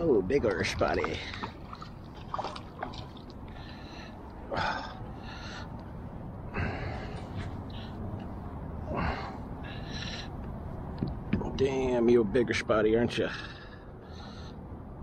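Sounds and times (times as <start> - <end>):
person breathing heavily: 3.5 - 8.2, 8.8 - 10.4, 13.3 - 15.0.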